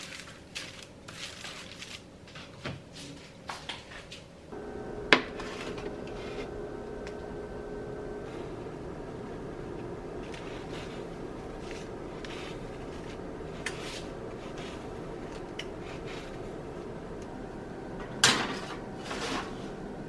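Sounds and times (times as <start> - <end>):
low hum: 4.5 - 20.0
serrated knife scoring dough: 4.9 - 17.3
baking sheet scraping on rack: 5.1 - 7.2, 8.1 - 16.8, 18.2 - 19.9
metal baking sheet clattering: 18.1 - 19.6.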